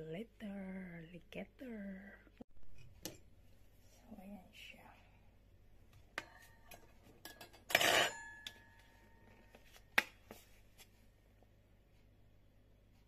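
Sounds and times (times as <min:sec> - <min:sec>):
kitchenware clatter with ringing: 0:06.2 - 0:08.8.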